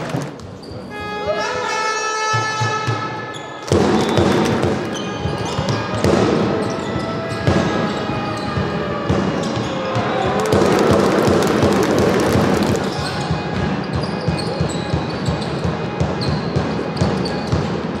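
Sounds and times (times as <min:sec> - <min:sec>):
music: 0:00.0 - 0:18.0
voices in a sports hall: 0:00.0 - 0:18.0
basketball bouncing on court: 0:03.6 - 0:18.0.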